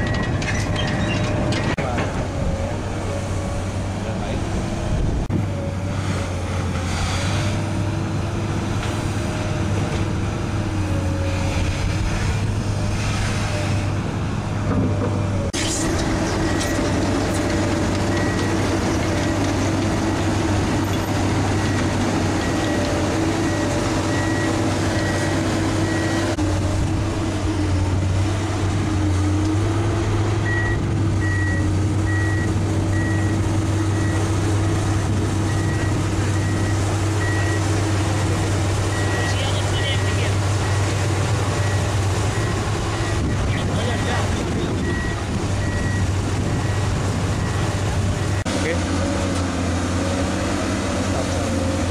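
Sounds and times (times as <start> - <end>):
diesel engine under hydraulic load: 0.0 - 51.9.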